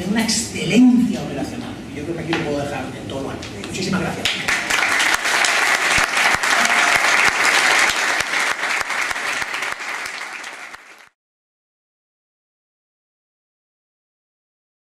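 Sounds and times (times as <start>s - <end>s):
audience applauding: 4.2s - 11.2s.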